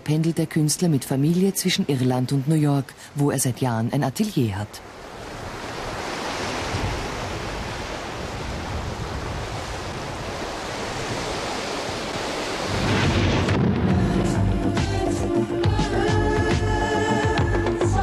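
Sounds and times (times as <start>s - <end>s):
sea surf on a beach: 0.0s - 15.7s
wind: 0.0s - 18.0s
music: 13.4s - 18.0s.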